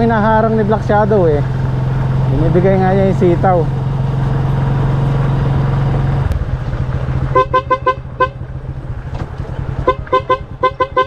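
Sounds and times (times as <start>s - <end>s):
small motorcycle engine running: 0.0s - 11.0s
motorcycle horn beeps: 7.3s - 8.4s, 9.8s - 11.0s.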